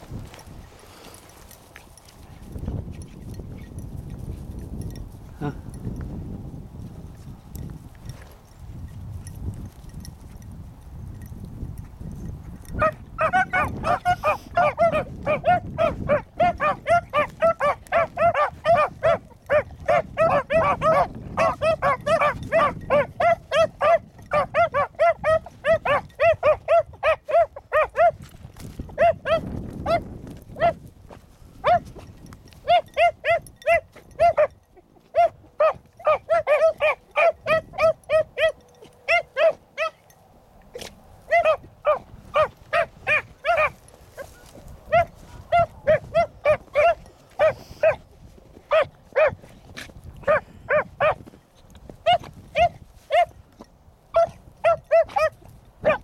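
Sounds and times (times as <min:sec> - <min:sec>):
wind noise on microphone: 0:00.0 - 0:56.0
dogs baying: 0:12.7 - 0:28.2, 0:32.6 - 0:40.1, 0:40.7 - 0:48.1, 0:54.1 - 0:56.0.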